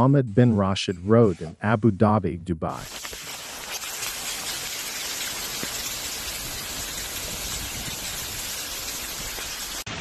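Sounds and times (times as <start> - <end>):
floodwater cascading down rock: 2.8 - 9.9.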